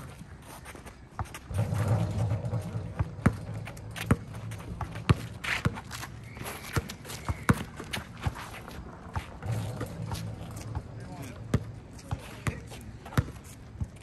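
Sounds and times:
players running on court: 0.0 - 14.0
basketball bouncing: 1.2 - 6.2, 9.2 - 14.0.

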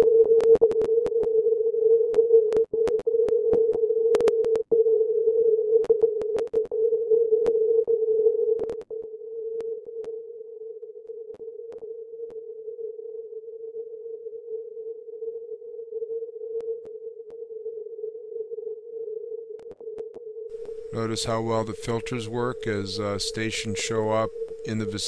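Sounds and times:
ringing filtered radio noise: 20.5 - 25.0
sharp radio clicks: 20.6 - 25.0.

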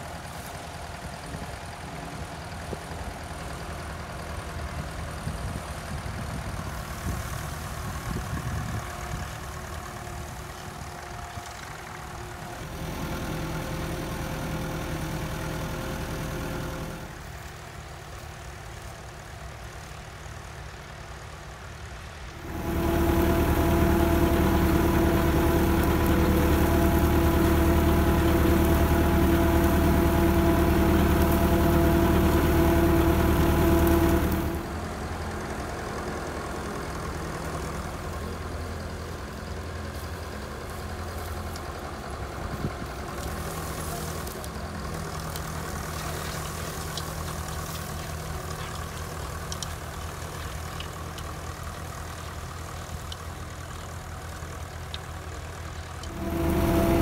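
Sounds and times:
tractor engine running: 0.0 - 57.0
faint clicks: 46.8 - 51.3.

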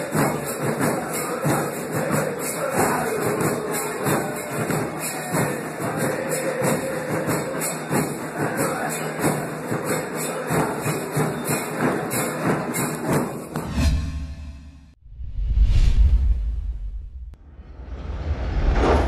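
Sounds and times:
crowd chanting in unison: 0.0 - 14.5
drums beating: 0.0 - 14.6.

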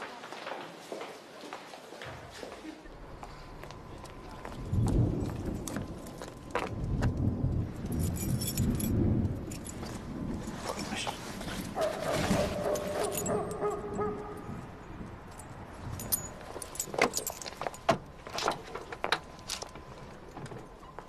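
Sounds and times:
keys jangling: 7.8 - 10.6, 11.6 - 18.8.

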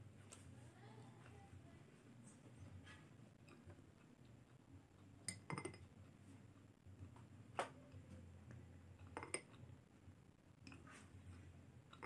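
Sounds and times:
metal spoon clinking glass bowl: 5.3 - 5.8.

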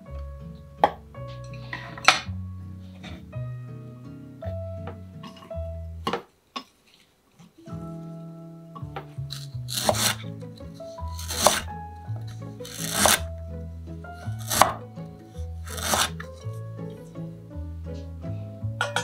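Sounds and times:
knife slicing ginger on wooden board: 9.3 - 10.2, 11.0 - 11.7, 12.6 - 13.3, 14.3 - 14.8, 15.6 - 16.2.

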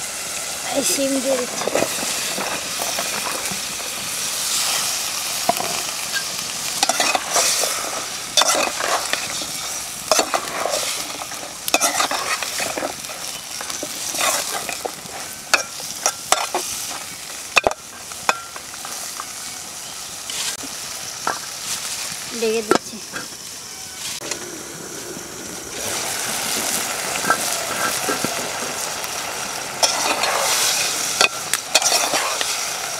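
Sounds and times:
beans sizzling in oil: 0.0 - 32.9
metal spatula scraping pot: 6.2 - 7.8, 8.4 - 16.9, 29.8 - 32.6.

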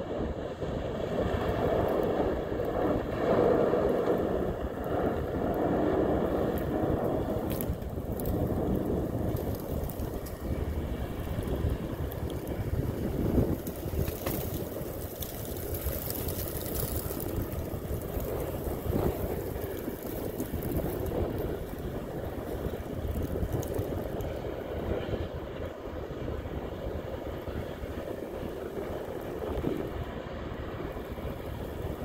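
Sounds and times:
wind buffeting microphone: 0.0 - 32.0
ice and water churning: 1.7 - 24.5
ice cracking: 3.6 - 24.4.

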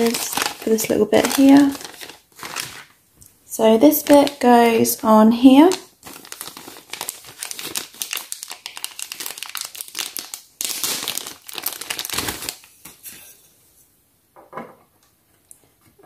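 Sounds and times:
plastic bag crinkling: 0.0 - 3.0, 3.6 - 13.0.

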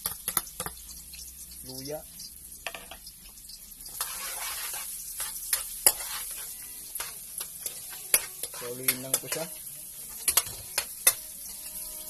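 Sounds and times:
garlic sizzling in hot oil: 0.0 - 12.0
spatula scraping wok: 3.8 - 12.0.

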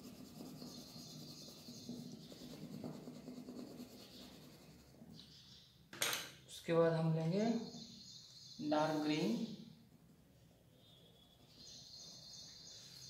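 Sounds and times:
pencil scratching on paper: 0.0 - 5.2.

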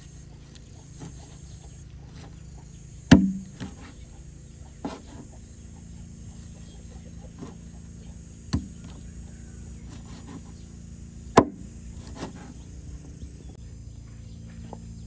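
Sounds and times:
insects droning: 0.0 - 15.0
blade chopping on wooden board: 0.4 - 1.4, 2.1 - 2.4, 3.1 - 4.0, 4.7 - 5.4, 6.6 - 7.9, 8.5 - 10.7, 11.3 - 13.1.

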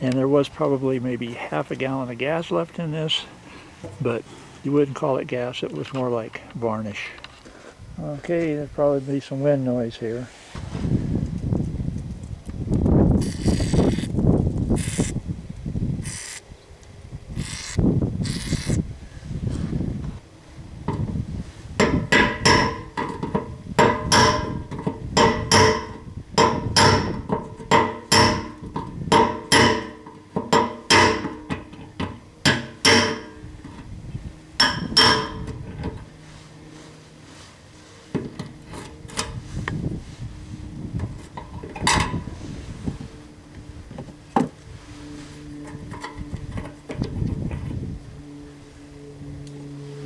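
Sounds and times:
hammer striking metal punch: 21.8 - 33.4, 34.6 - 35.6
metal tapping: 21.8 - 33.8, 34.6 - 36.0.

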